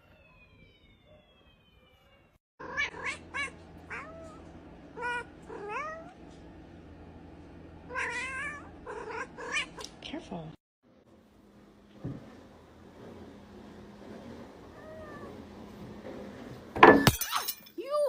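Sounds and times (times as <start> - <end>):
faint falling whistle-like tones: 0.0 - 2.4
cats meowing: 0.0 - 6.2, 7.9 - 9.9
steady low hum: 2.8 - 16.8.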